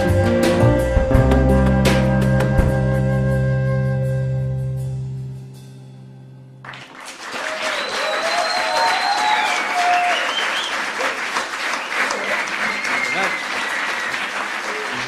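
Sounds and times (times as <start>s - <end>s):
audience applause: 6.6s - 15.0s.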